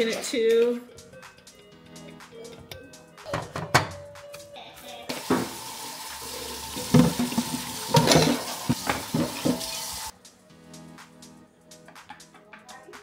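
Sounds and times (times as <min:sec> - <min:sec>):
dishes knocking and clattering: 0:03.2 - 0:04.3, 0:05.1 - 0:05.7, 0:06.8 - 0:09.8
faucet running into a steel sink: 0:05.1 - 0:10.1.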